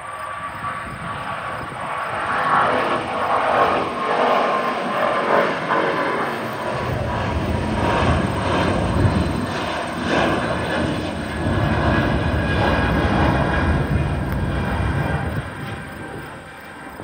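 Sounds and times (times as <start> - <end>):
jet engines rushing: 0.0 - 17.0
deep engine rumble: 6.6 - 16.4.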